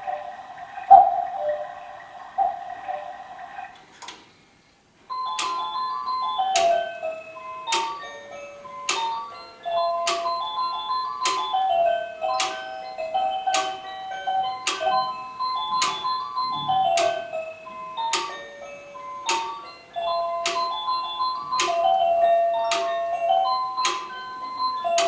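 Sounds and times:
cuckoo call: 0.0s - 3.8s, 5.2s - 8.0s, 8.9s - 18.4s, 19.2s - 25.0s
electronic clock melody: 0.0s - 3.8s, 5.1s - 25.0s
sharp clock clicks: 0.8s - 4.2s, 5.3s - 5.8s, 7.7s - 8.0s, 8.9s - 9.2s, 10.0s - 10.5s, 11.2s - 12.7s, 13.5s - 17.3s, 18.1s - 18.4s, 19.2s - 25.0s.

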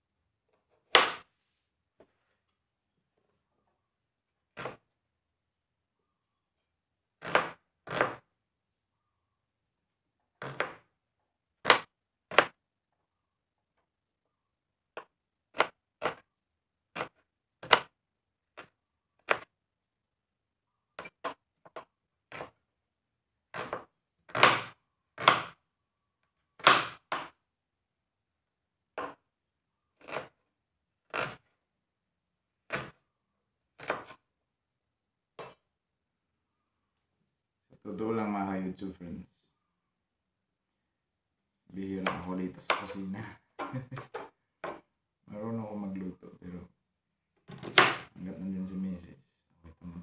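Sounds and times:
knife chopping on plastic board: 4.5s - 4.8s, 7.2s - 8.3s, 10.4s - 10.9s, 11.6s - 12.6s, 14.9s - 16.3s, 16.9s - 19.5s, 21.0s - 22.6s, 23.5s - 25.6s, 26.6s - 27.4s, 29.0s - 29.2s, 30.0s - 30.4s, 31.1s - 31.5s, 32.7s - 33.0s, 33.8s - 34.2s, 35.4s - 35.6s, 42.0s - 43.0s, 47.5s - 48.1s.

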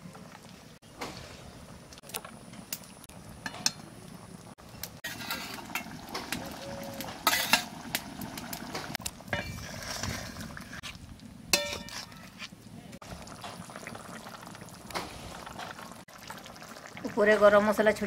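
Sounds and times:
metal spatula scraping a pan: 5.0s - 6.0s, 7.2s - 7.7s, 11.5s - 12.5s.

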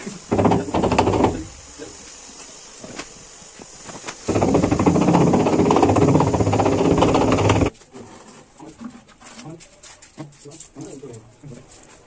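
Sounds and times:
machine rattling loudly: 0.3s - 1.6s, 4.2s - 7.7s.

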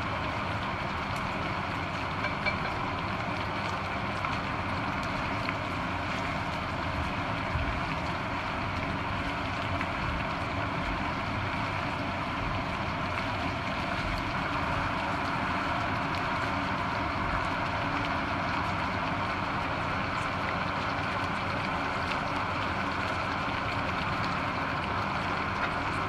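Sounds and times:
tongs clicking in frying pan: 2.2s - 2.9s.

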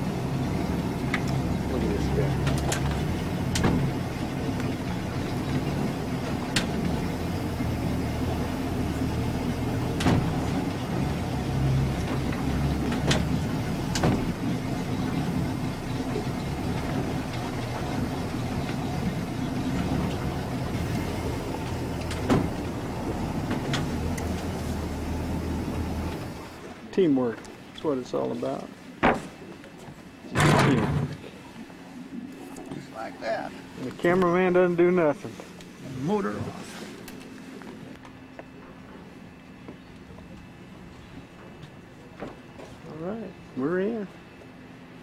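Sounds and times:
boat engine running: 0.0s - 45.0s
sharp knocks and clicks: 2.4s - 3.9s, 6.5s - 7.0s, 12.0s - 14.4s.

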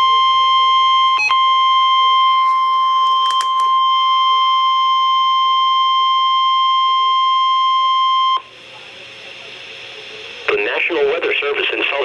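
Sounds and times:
clicks: 2.5s - 3.8s.

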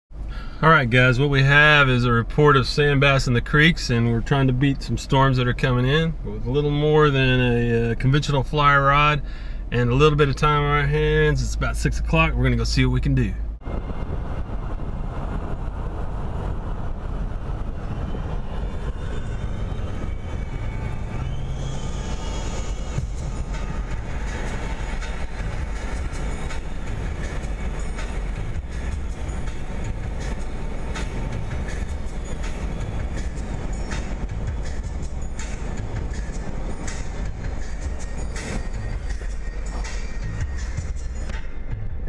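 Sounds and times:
tyre and wind rumble: 13.0s - 42.0s.

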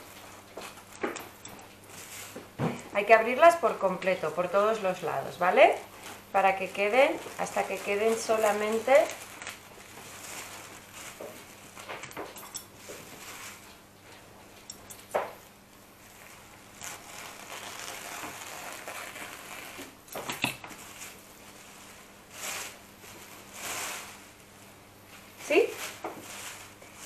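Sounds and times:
plastic bags crinkling: 5.6s - 14.3s, 16.0s - 24.7s, 25.5s - 27.0s.

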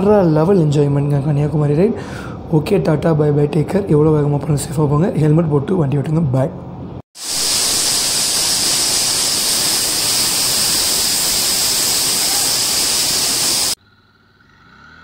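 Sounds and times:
waterfall pouring and splashing: 7.2s - 13.8s.

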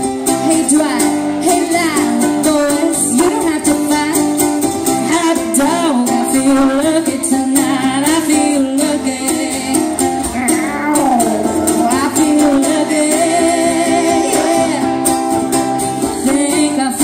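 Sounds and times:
acoustic guitar strumming: 0.0s - 17.0s
ukulele strumming: 0.0s - 17.0s
man and woman singing in harmony: 5.9s - 15.1s.

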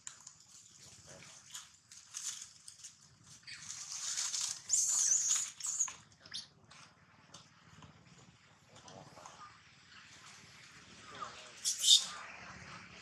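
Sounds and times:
dry leaves rustling: 0.5s - 5.6s
monkey chirp: 4.7s - 6.5s, 11.6s - 12.2s
monkeys squealing: 11.6s - 12.2s.

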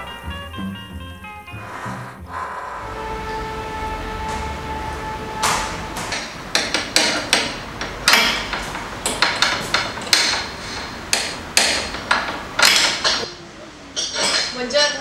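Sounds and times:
metal tool strikes and clanks: 14.0s - 14.6s.

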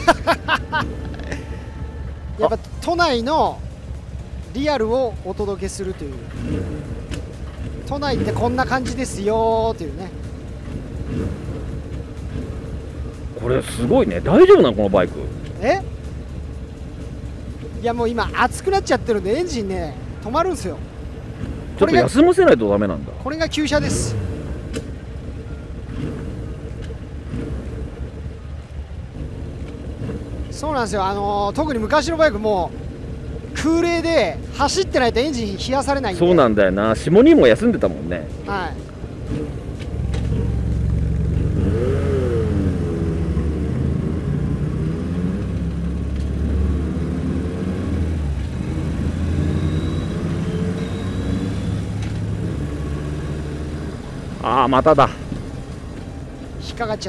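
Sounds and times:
motorcycle engine idling: 0.0s - 41.9s.

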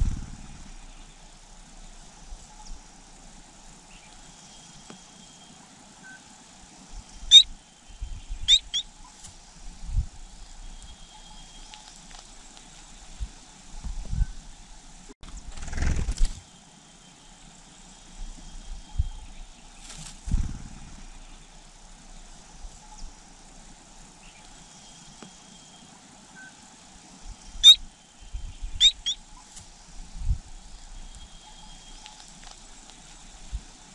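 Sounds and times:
high sweeping bird chirps: 27.6s - 29.5s.

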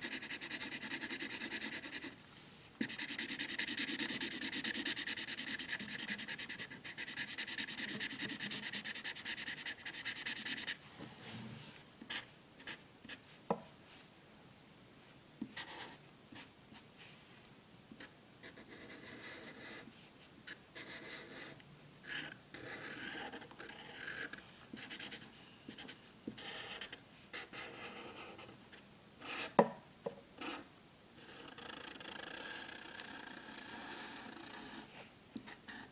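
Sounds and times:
marker scratching on paper: 0.0s - 2.2s, 2.8s - 10.8s, 12.1s - 13.4s, 15.5s - 16.8s, 18.0s - 19.8s, 20.5s - 28.6s, 29.2s - 29.6s, 30.4s - 30.6s, 31.2s - 35.9s.

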